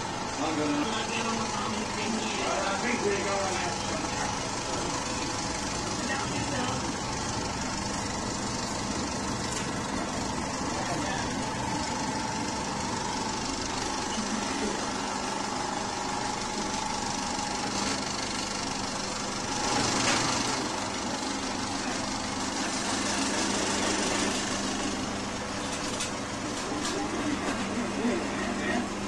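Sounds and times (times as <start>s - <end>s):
film projector running: 0.0s - 29.0s
steady hum: 0.0s - 29.0s.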